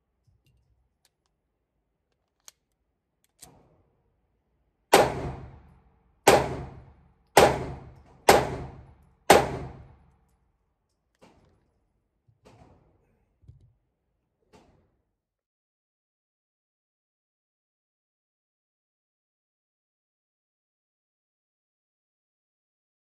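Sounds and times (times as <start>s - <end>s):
pistol shots echoing indoors: 4.8s - 10.4s.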